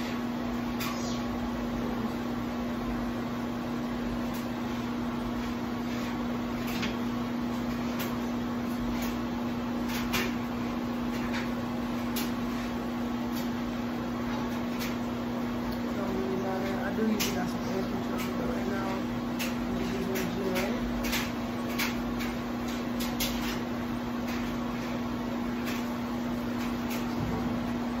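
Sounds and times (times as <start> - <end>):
exhaust fan motor hum: 0.0 - 28.0.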